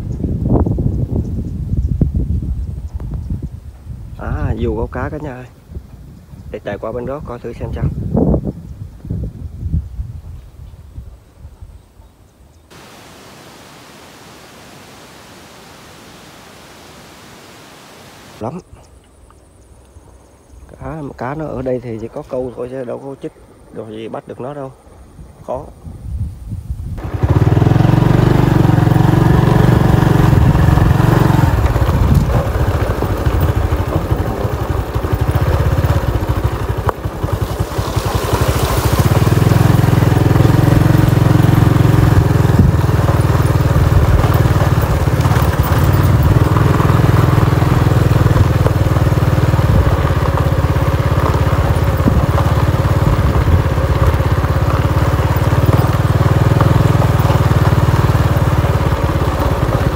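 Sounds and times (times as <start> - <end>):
tyres on gravel track: 12.7 - 25.8, 27.0 - 59.9
motorbike engine running: 27.0 - 59.9.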